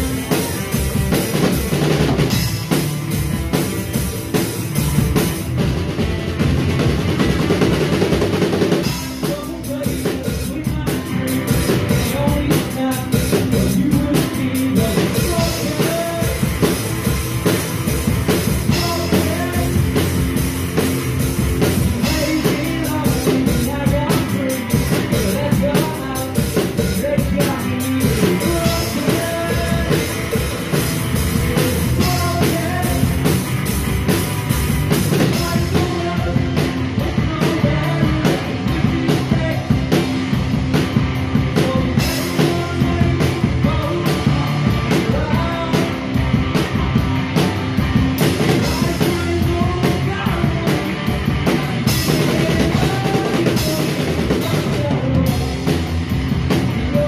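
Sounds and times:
drum kit: 0.0 - 57.0
electric guitars: 0.0 - 57.0
person singing: 8.7 - 20.9, 21.5 - 33.7, 35.0 - 40.2, 41.4 - 46.7, 48.2 - 56.0, 56.6 - 57.0.

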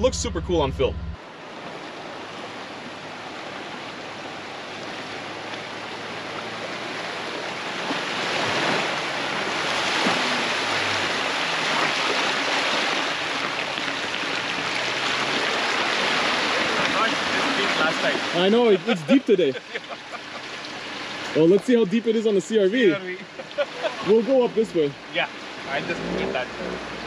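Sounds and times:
faint vehicle engine: 0.0 - 27.0
water rushing and splashing: 0.0 - 27.0.

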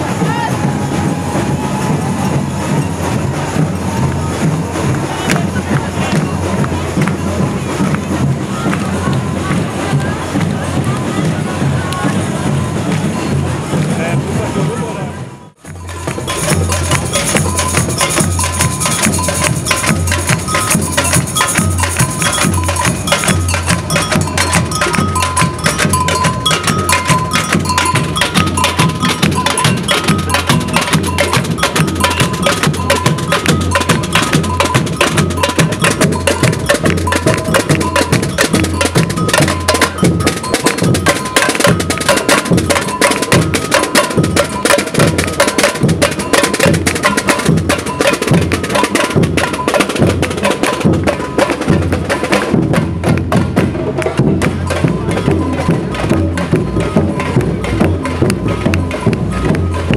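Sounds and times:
surdo bass drums: 0.0 - 59.9
two-note bell pattern: 15.7 - 50.2.

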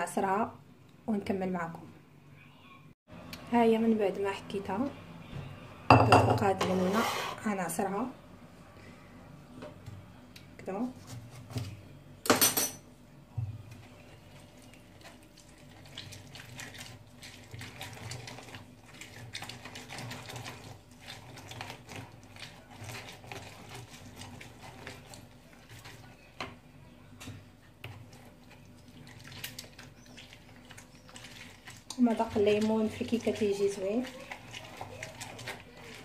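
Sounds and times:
lemon squishing on citrus reamer: 28.2 - 36.0.

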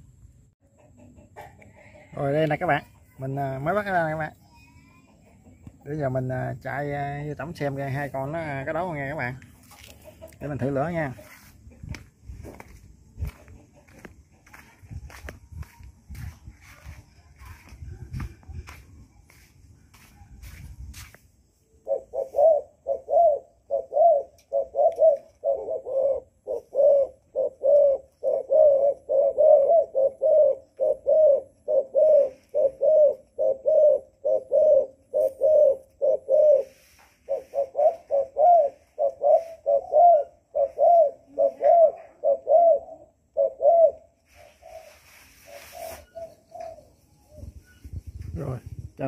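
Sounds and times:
dove cooing: 21.6 - 48.0.

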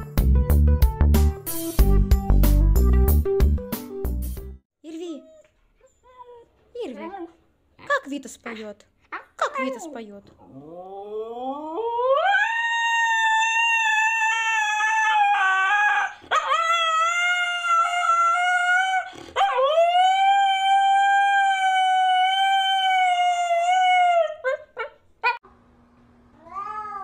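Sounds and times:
husky howling: 10.6 - 24.6.

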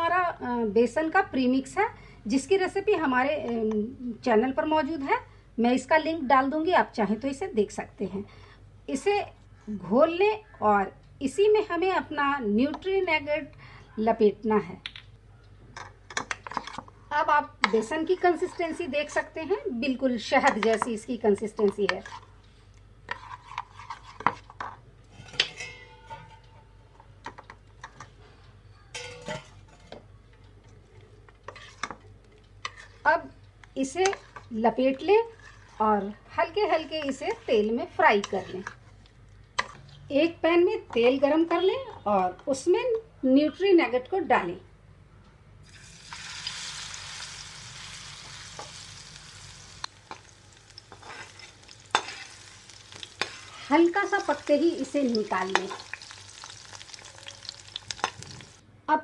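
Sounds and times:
food sizzling in hot oil: 45.6 - 58.6.

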